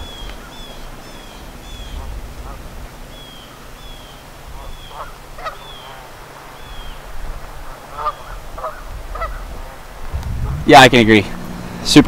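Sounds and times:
geese honking: 0.0s - 10.8s.

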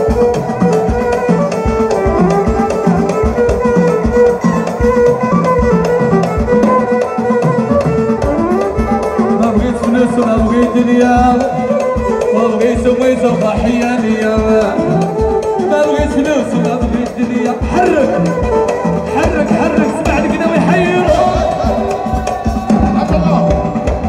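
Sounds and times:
fast drum rhythm: 0.0s - 24.0s
violins and keyboard melody: 0.0s - 24.0s.

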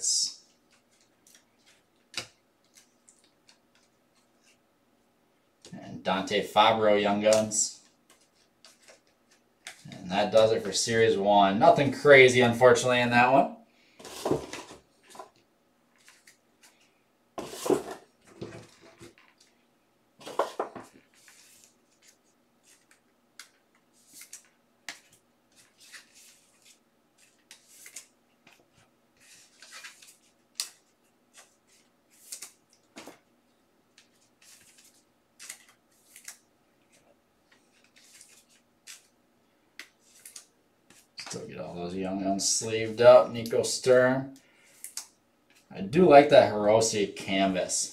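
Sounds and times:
cards rustling and swishing: 7.2s - 10.5s, 14.0s - 19.6s, 20.2s - 33.2s, 34.0s - 39.2s, 39.8s - 41.4s.

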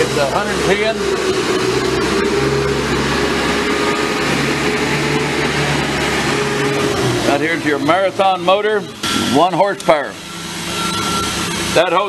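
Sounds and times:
air compressor humming: 0.0s - 12.0s.

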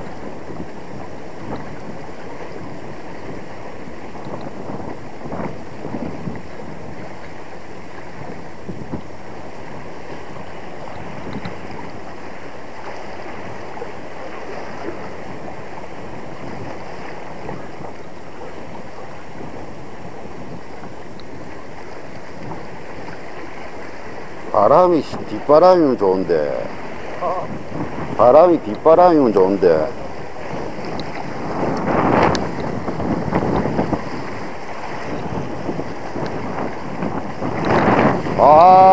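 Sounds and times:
waves washing against rocks: 0.0s - 38.9s
wind buffeting microphone: 0.0s - 38.9s.

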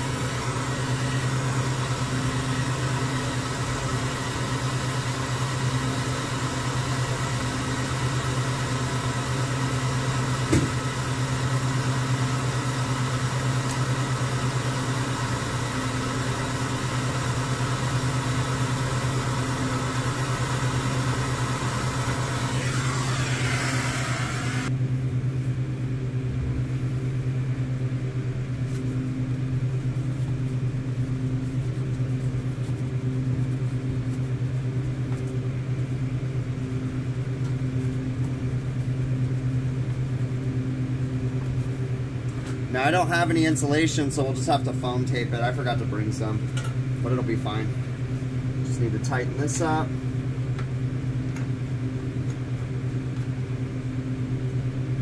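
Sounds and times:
torch flame hissing: 0.0s - 24.7s
low machine hum: 0.0s - 55.0s.

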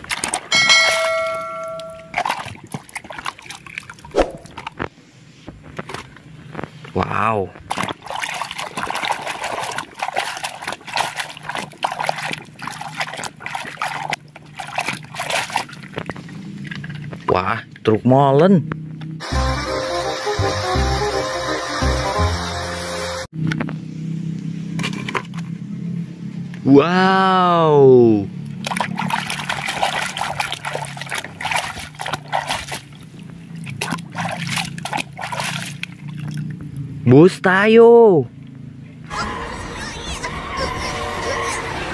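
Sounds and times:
water sloshing in plastic bucket: 0.0s - 0.5s, 2.1s - 4.8s, 5.6s - 6.9s, 7.5s - 17.3s, 28.5s - 36.9s.

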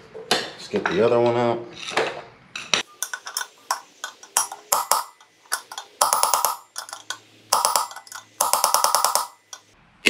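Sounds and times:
hammer striking metal socket: 3.0s - 9.7s.

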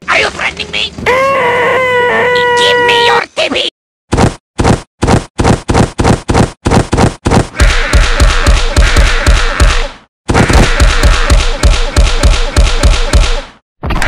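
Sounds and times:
cartoon punch and kick impacts: 4.1s - 13.6s.

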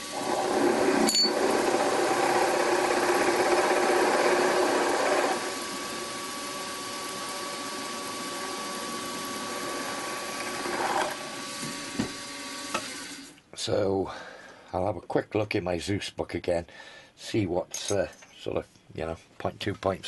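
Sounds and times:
drill cutting into metal: 0.0s - 13.3s
milling spindle running: 0.0s - 13.3s.

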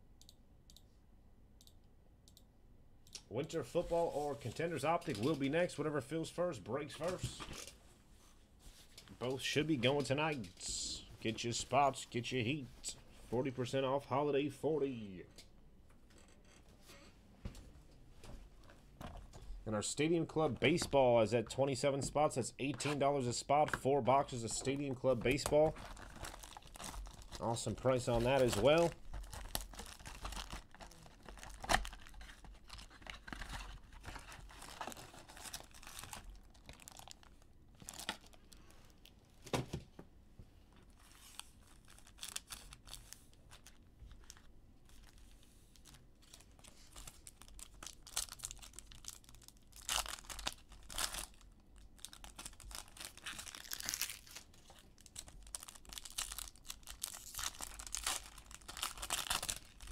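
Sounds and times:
card packs rustling: 3.6s - 5.8s, 22.2s - 39.6s, 41.0s - 59.9s
foil wrappers tearing: 25.3s - 33.6s, 45.8s - 59.9s
plastic shrink-wrap crinkling: 25.3s - 39.2s, 40.9s - 59.9s.

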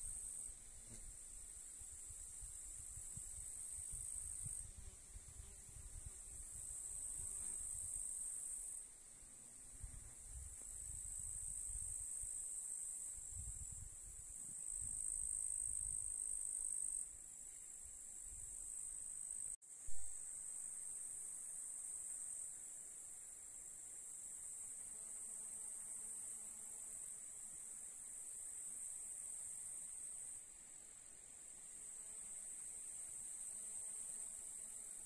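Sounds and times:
wind rumbling on microphone: 1.8s - 7.9s, 9.7s - 12.2s, 13.2s - 16.1s.

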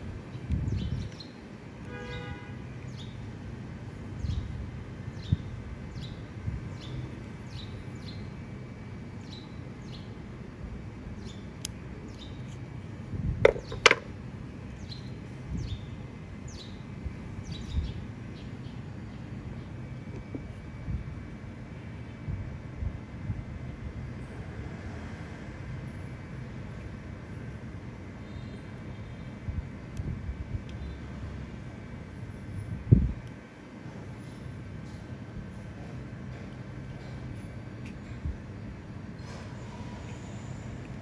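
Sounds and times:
small bird chirping: 11.1s - 12.6s, 13.5s - 13.9s, 14.7s - 19.8s.

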